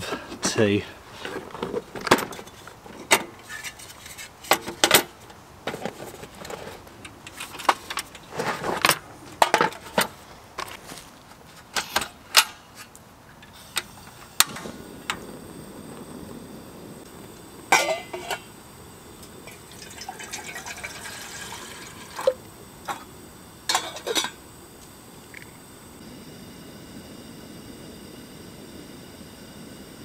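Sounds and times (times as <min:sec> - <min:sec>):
gas burner hissing: 0:11.7 - 0:30.0
gas stove handling clatter: 0:17.7 - 0:18.5, 0:23.7 - 0:24.4.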